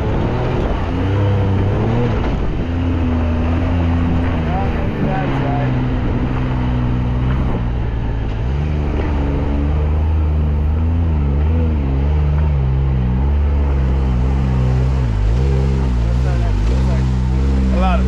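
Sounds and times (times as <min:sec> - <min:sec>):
engine revving: 0:00.0 - 0:18.0.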